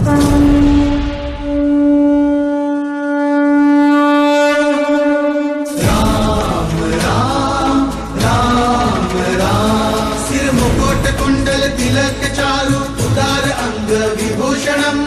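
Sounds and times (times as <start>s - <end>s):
conch shell blown: 0.0s - 7.0s
devotional song with chanting voices: 5.7s - 15.0s.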